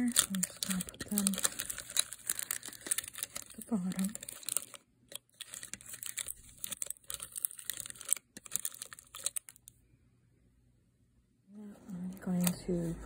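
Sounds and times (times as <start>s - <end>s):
plastic candy wrappers crinkling: 0.0s - 9.8s.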